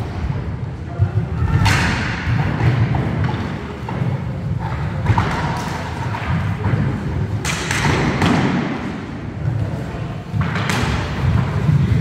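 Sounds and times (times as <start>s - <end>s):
stick and ball knocks: 4.7s - 8.9s, 10.4s - 11.2s.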